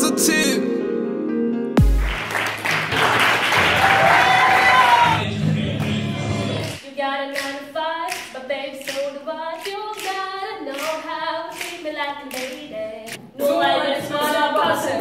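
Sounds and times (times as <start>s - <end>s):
loud full music: 0.0s - 6.8s
hand claps: 1.8s - 4.2s, 7.4s - 13.2s
girl singing a cappella: 6.8s - 15.0s.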